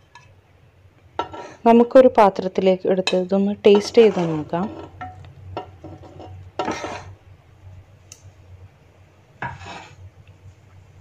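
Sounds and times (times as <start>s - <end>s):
metal spoon scraping metal pot: 3.1s - 5.0s, 5.8s - 7.1s, 9.4s - 10.0s.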